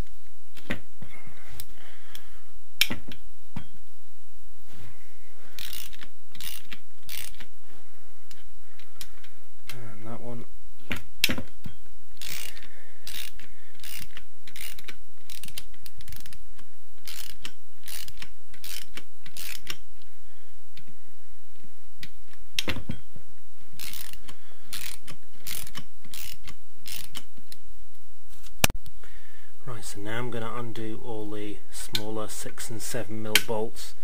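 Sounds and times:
socket ratchet clicking: 0:05.6 - 0:07.5, 0:12.2 - 0:16.4, 0:17.0 - 0:19.8, 0:23.8 - 0:27.3.

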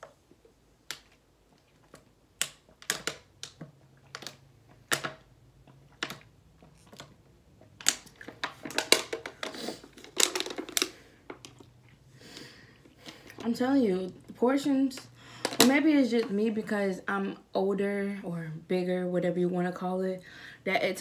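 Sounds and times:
plastic bottle crackling: 0:05.9 - 0:11.8.

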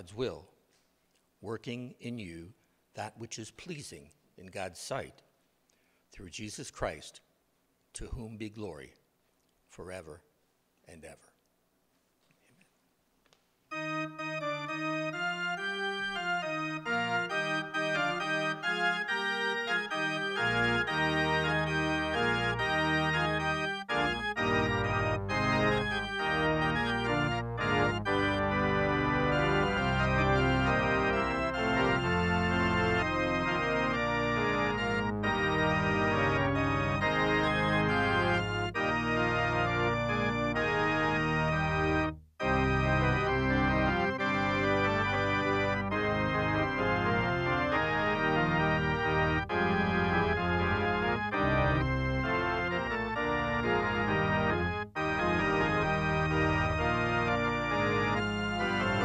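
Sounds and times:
organ music: 0:00.0 - 0:00.5, 0:01.4 - 0:05.1, 0:13.7 - 0:59.0.

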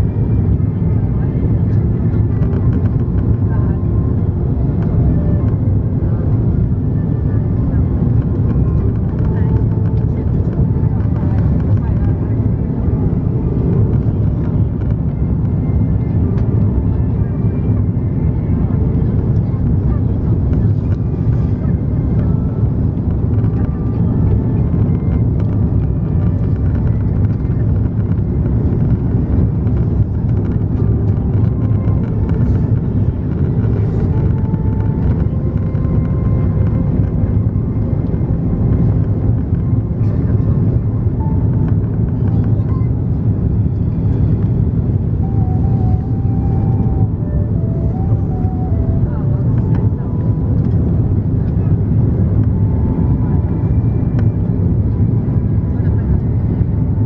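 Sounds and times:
airplane cabin rumble: 0:00.0 - 0:57.0
faint whine: 0:00.0 - 0:57.0.

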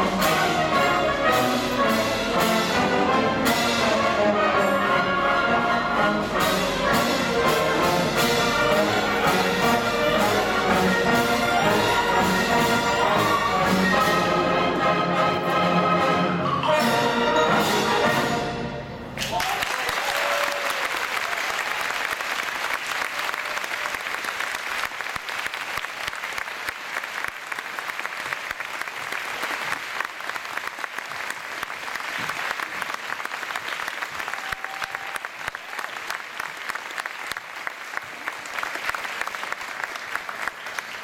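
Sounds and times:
audience applauding: 0:19.2 - 0:41.0.

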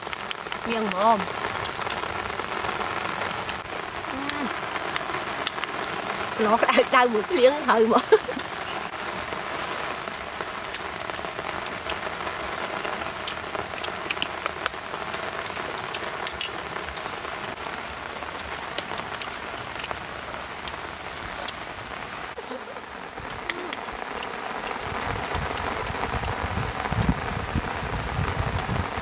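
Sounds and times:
rain drop ticks: 0:00.0 - 0:29.0
steady rain falling: 0:00.0 - 0:29.0.

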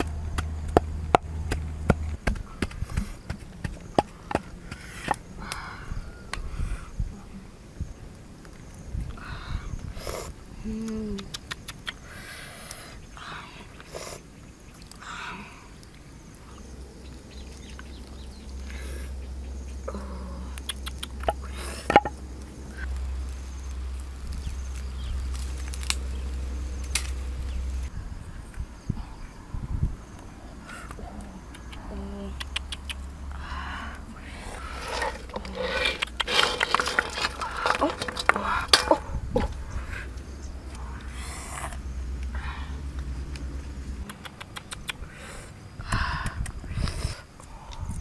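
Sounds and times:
wooden pestle pounding in mortar: 0:00.0 - 0:05.2
low steady rumble: 0:00.0 - 0:11.0.

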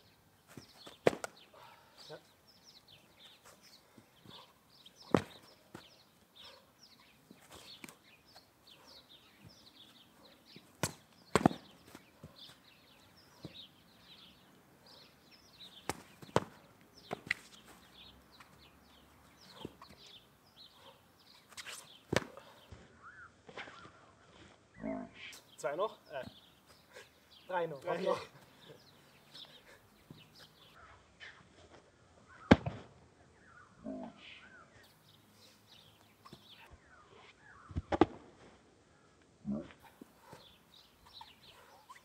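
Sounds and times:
small birds chirping: 0:00.0 - 0:32.6, 0:33.2 - 0:38.0, 0:38.8 - 0:42.0
foam sabres smacking: 0:00.9 - 0:01.4, 0:05.1 - 0:05.8, 0:10.8 - 0:12.0, 0:15.8 - 0:17.5, 0:22.1 - 0:22.4, 0:32.4 - 0:32.9.

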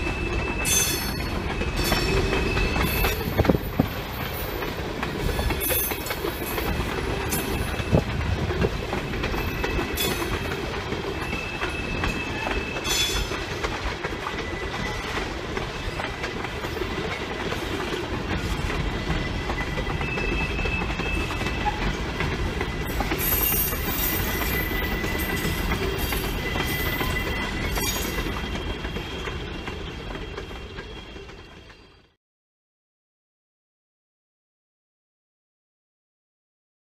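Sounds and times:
high wheel squeal: 0:00.0 - 0:04.6, 0:09.1 - 0:13.6, 0:14.2 - 0:15.9, 0:18.3 - 0:32.0
train cars rumbling on rails: 0:00.0 - 0:32.2.

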